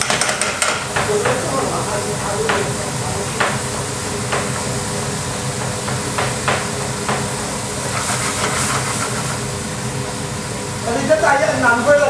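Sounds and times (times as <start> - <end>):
food sizzling in a pan: 0.2 - 11.9.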